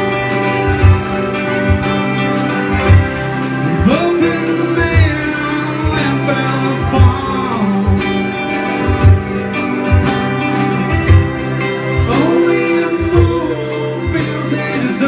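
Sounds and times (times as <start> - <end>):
accordion: 0.0 - 15.0
acoustic guitar: 0.0 - 15.0
drums: 0.0 - 15.0
electric guitar: 0.0 - 15.0
lead vocal singing: 3.6 - 9.3, 11.8 - 15.0.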